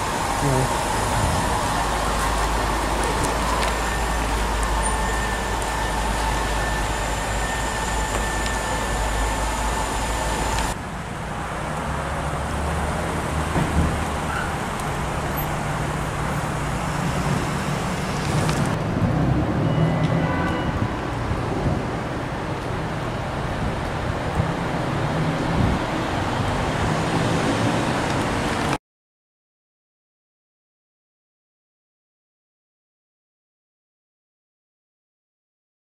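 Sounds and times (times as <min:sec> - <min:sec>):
car engines at low speed: 0:00.0 - 0:19.6.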